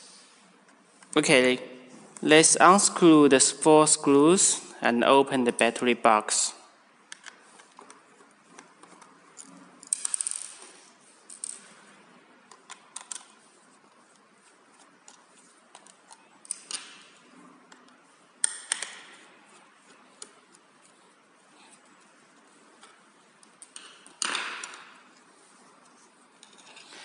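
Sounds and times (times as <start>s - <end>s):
metal screws clinking on table: 9.4s - 10.7s
screwdriver clicks and scrapes: 26.4s - 27.0s.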